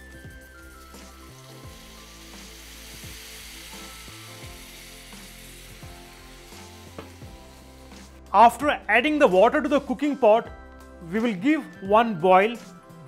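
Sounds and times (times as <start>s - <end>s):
water sizzling in hot oil: 0.0s - 8.5s.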